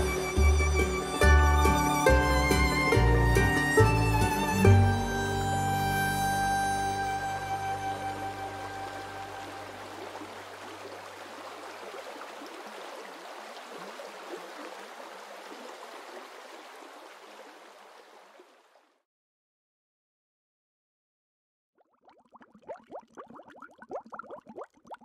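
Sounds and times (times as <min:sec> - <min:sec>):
low background music: 0:00.0 - 0:09.7
water running and bubbling: 0:08.5 - 0:18.9, 0:21.8 - 0:25.0.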